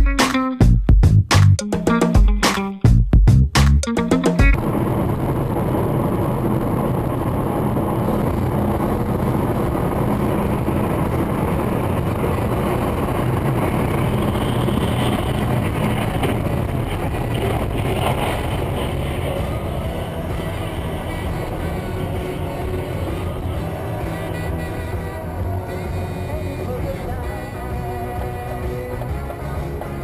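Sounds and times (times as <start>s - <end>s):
music: 0.0s - 4.6s, 18.2s - 30.0s
vehicle driving rumble: 2.9s - 30.0s.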